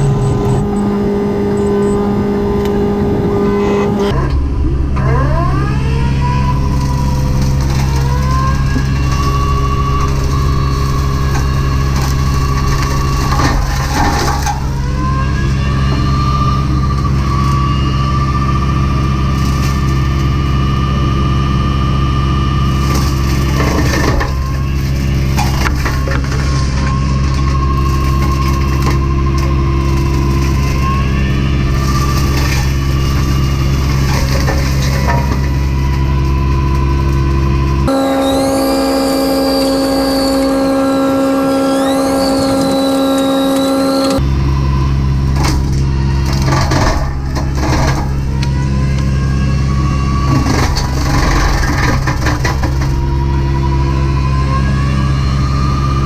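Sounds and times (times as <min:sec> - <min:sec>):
mulching head high whine: 0:00.0 - 0:36.2, 0:37.4 - 0:46.5
excavator engine: 0:00.0 - 0:56.0
brush crackling and splintering: 0:06.6 - 0:14.8, 0:22.6 - 0:44.2.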